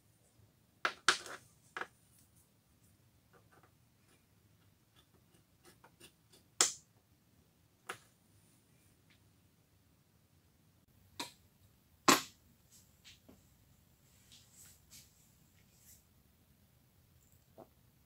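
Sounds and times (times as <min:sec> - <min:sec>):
faint ticks and scrapes: 0:01.3 - 0:06.5.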